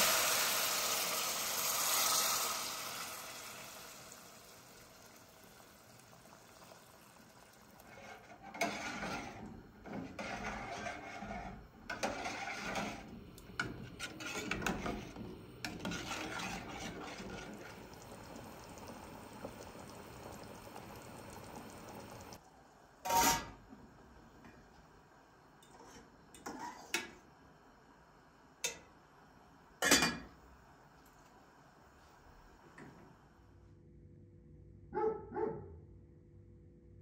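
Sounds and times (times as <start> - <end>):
ladle scraping stew in a pot: 7.8 - 17.8.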